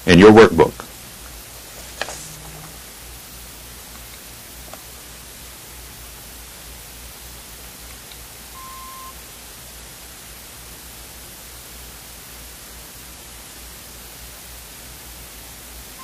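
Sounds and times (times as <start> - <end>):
tape hiss: 0.0 - 16.0
low hum: 1.7 - 3.1
short beep: 8.6 - 9.1.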